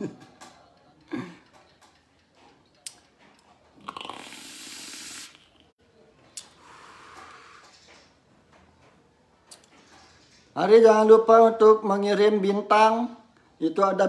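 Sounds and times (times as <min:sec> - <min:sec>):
vape draw airy hiss: 0:04.0 - 0:05.5
breathy exhale hiss: 0:06.6 - 0:07.7.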